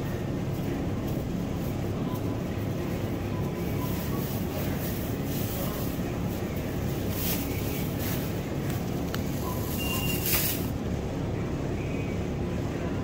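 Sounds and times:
store background rumble: 0.0s - 13.0s
short high beep: 9.4s - 10.4s.

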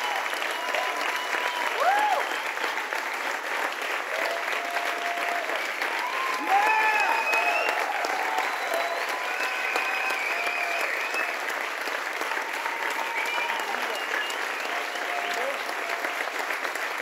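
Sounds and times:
audience applauding: 0.0s - 17.0s
cheering voices: 0.0s - 17.0s
whistles: 6.8s - 11.5s, 13.0s - 15.4s.

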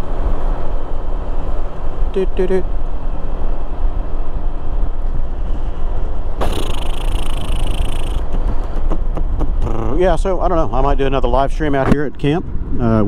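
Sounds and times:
wind and road noise: 0.0s - 13.0s
harsh hiss: 6.4s - 8.2s.

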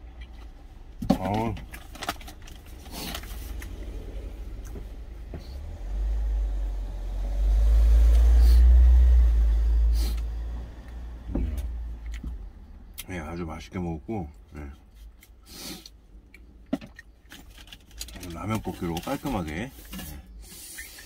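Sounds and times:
vehicle passing by rumble: 2.4s - 13.0s.

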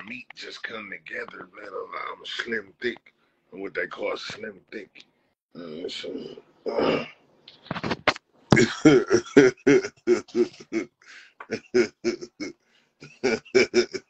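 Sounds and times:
man laughing hard: 8.6s - 14.0s.

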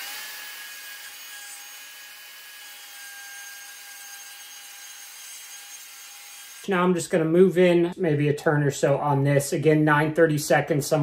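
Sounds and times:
router whining while cutting: 0.0s - 6.7s.

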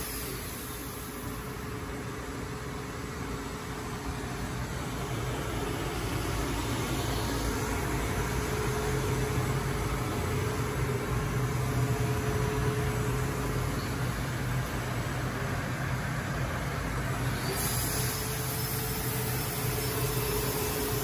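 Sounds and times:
machine hum from motors and blowers: 0.0s - 21.0s.

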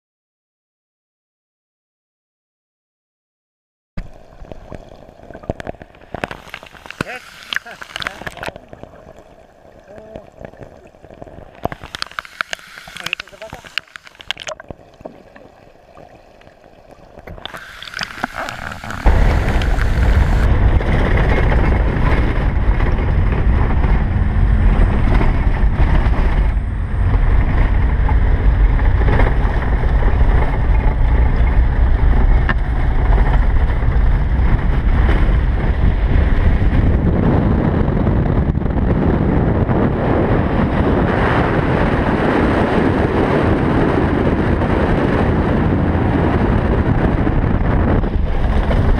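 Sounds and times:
muffled underwater sound: 4.0s - 48.9s
road noise: 17.3s - 36.8s
wind rushing on microphone: 17.4s - 48.9s.

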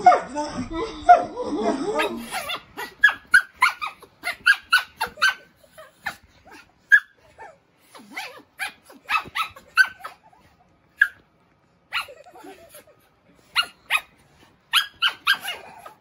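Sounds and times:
small dog yapping: 2.0s - 11.2s, 11.9s - 12.9s, 13.5s - 16.0s.

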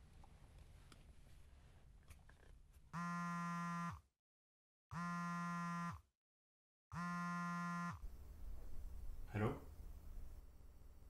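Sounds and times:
mobile phone buzzing: 3.0s - 4.1s, 4.9s - 6.1s, 6.9s - 8.0s.

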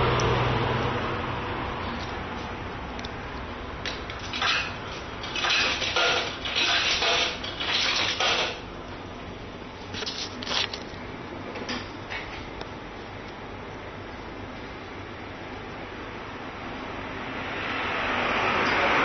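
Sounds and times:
rustling and clattering handling noises: 9.8s - 11.0s.

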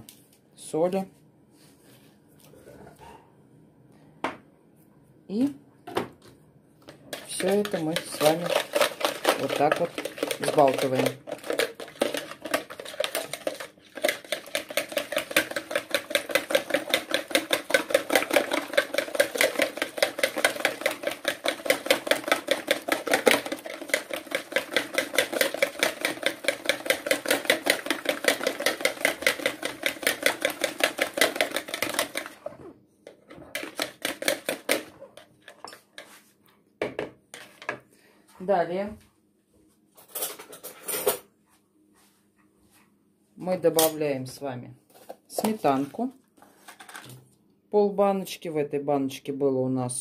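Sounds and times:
whisk beating in plastic bowl: 7.0s - 32.7s, 33.3s - 36.2s.

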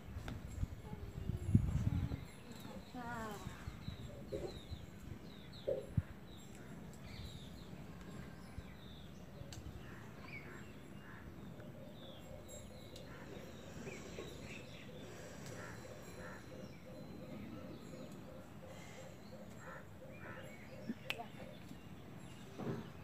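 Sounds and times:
outdoor background noise: 0.0s - 23.0s.

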